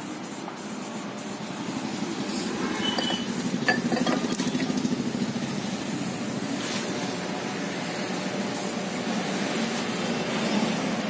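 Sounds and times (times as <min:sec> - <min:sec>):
ceramic pots clinking: 0:02.8 - 0:04.7.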